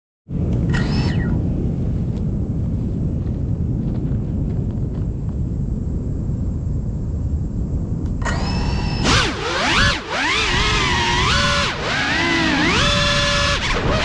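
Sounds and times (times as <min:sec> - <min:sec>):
low rumbling noise: 0:00.3 - 0:14.0
drone motors whining: 0:00.5 - 0:01.5, 0:08.1 - 0:14.0.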